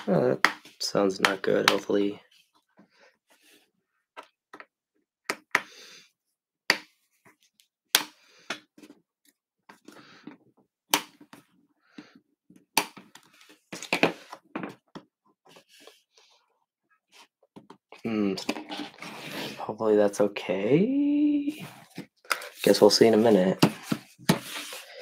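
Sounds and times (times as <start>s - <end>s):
light scraping and handling noise: 21.5s - 25.0s.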